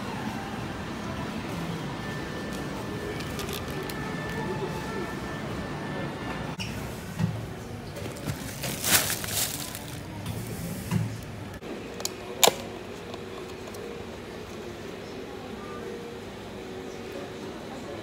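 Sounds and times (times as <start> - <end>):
plastic shopping bag rustling: 8.0 - 10.8.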